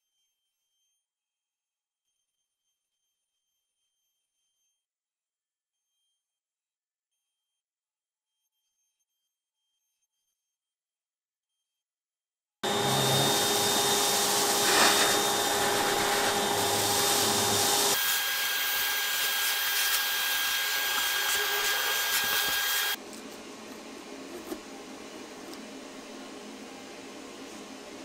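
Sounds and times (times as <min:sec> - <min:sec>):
vacuum sucking up plastic chips: 0:12.6 - 0:23.0.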